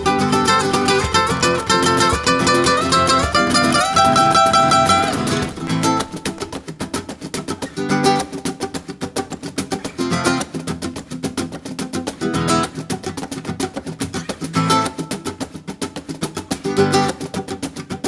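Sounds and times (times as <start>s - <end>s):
acoustic guitar picking: 0.0s - 18.0s.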